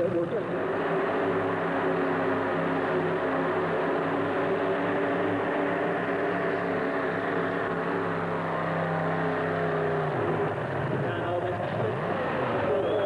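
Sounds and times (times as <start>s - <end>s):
tractor engine running loud: 0.0s - 13.0s.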